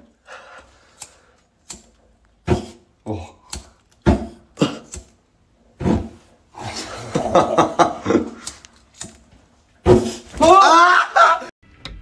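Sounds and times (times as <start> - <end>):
laughter: 6.8 - 8.4, 10.8 - 11.5.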